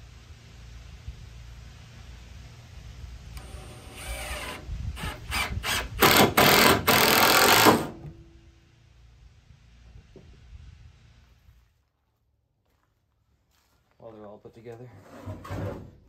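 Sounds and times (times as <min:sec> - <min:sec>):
impact driver hammering screw: 0:04.0 - 0:08.0.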